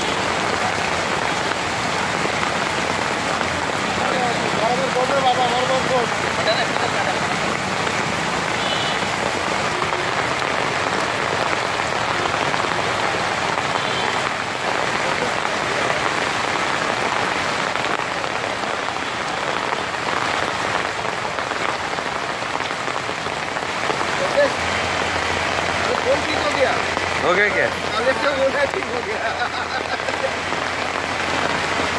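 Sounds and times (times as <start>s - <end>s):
heavy rain on standing water: 0.0s - 31.9s.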